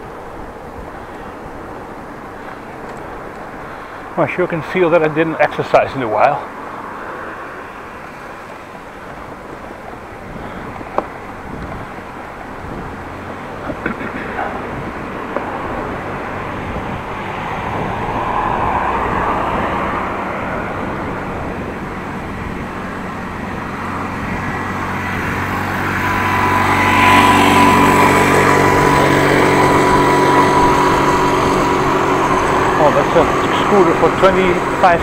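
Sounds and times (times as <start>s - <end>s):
wind and tyre noise: 0.0s - 35.0s
electric bike motor whine: 14.6s - 35.0s.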